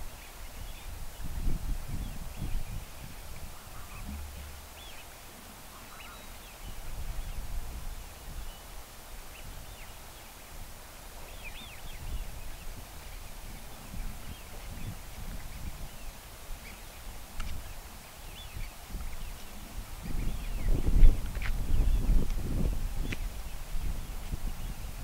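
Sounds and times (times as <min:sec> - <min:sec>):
wind rumble on microphone: 0:00.0 - 0:25.0
birds whistling calls: 0:03.5 - 0:05.1, 0:05.7 - 0:07.4.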